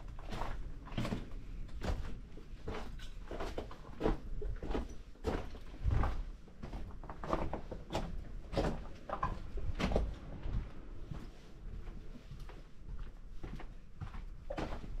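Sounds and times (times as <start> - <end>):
footsteps knocking and scuffing: 0.1 - 15.0.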